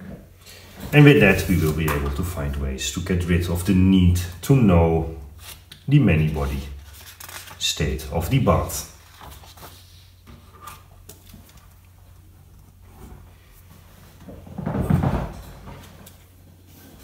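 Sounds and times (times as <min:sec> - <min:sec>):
paper rustle: 0:05.4 - 0:11.8.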